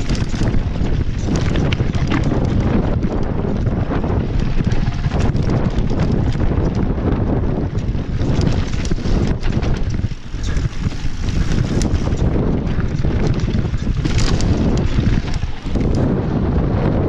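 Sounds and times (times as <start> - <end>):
bike clicks and rattles: 0.0 - 17.0
tyres rumbling on rocky trail: 0.0 - 17.0
wind buffeting microphone: 0.0 - 17.0.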